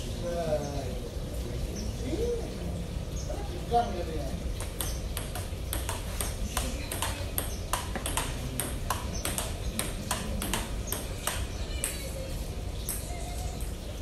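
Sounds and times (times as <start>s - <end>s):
table tennis ball clicking: 4.6s - 12.0s.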